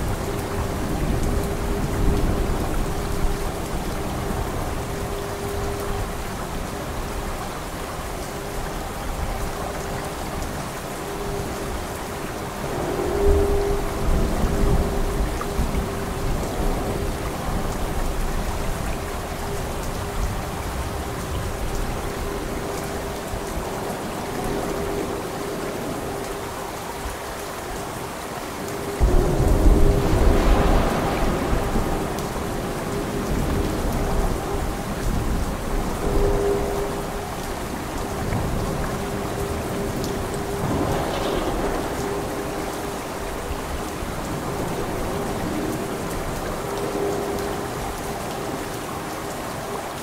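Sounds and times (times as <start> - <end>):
heavy rain: 0.0 - 50.0
loud peal of thunder: 29.0 - 34.3, 40.4 - 44.9
thunder rumbling: 29.0 - 47.9.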